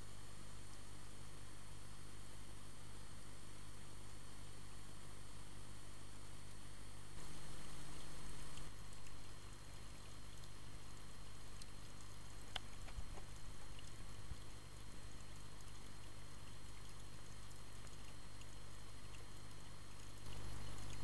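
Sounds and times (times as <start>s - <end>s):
underwater low hum and hiss: 0.0s - 21.0s
faint clicks: 7.2s - 21.0s.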